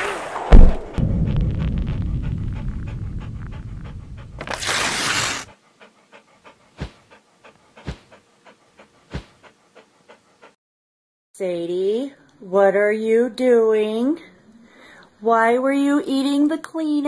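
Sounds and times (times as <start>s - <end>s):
low rumble: 0.2s - 4.4s
cartoon dog panting: 2.0s - 10.6s.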